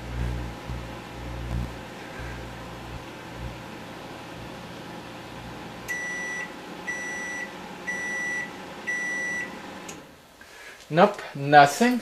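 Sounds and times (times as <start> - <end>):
microwave oven humming: 0.0 - 10.3
microwave long beeps: 5.8 - 10.0.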